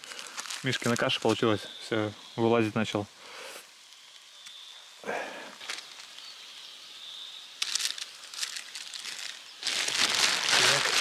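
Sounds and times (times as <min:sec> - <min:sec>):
plastic bags rustling: 0:00.0 - 0:01.5, 0:07.6 - 0:11.0.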